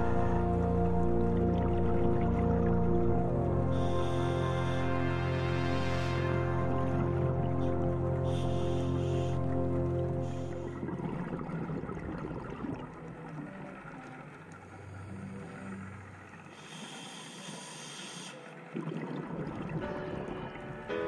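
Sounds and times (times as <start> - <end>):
scuba breathing bubbles: 3.7 - 20.9
regulator in-breath hiss: 8.2 - 9.4, 16.5 - 18.6.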